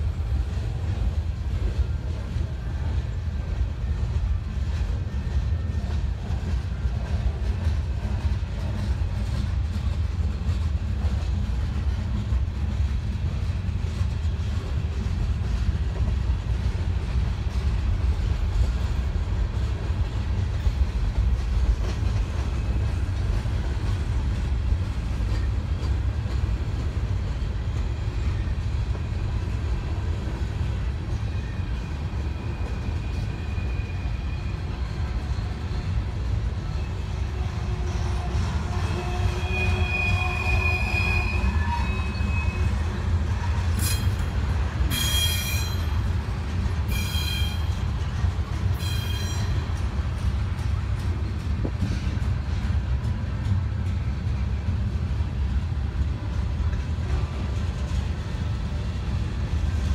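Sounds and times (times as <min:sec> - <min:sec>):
freight train rumbling past: 0:00.0 - 0:59.9.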